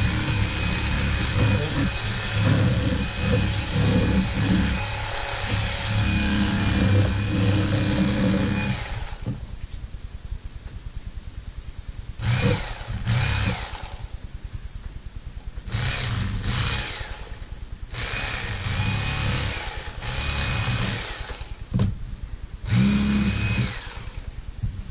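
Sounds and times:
electric knife buzzing: 0.0s - 9.4s, 12.2s - 14.1s, 15.7s - 17.4s, 18.0s - 21.6s, 22.7s - 24.2s.

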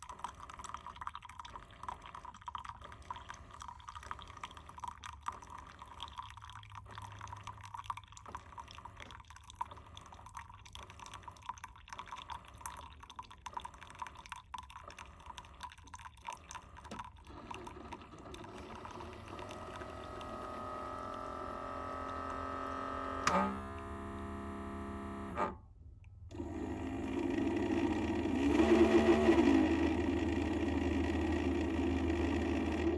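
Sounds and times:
coffee dripping into a mug: 0.0s - 23.0s.

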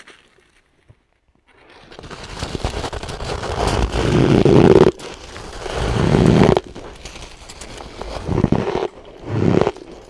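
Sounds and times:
ice being chewed: 5.9s - 10.0s.

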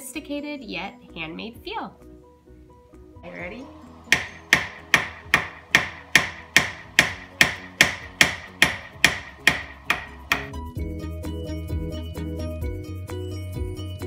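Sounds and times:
background music: 0.0s - 14.0s
hammer striking metal: 4.1s - 10.6s.

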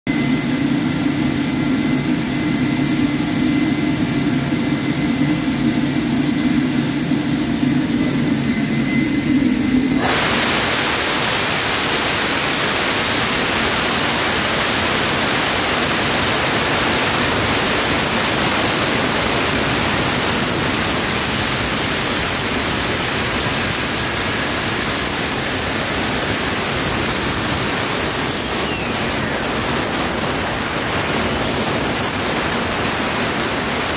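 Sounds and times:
auxiliary power unit humming: 0.1s - 33.9s
jet engine spooling up whine: 0.1s - 33.9s
rush of air: 9.3s - 33.9s.

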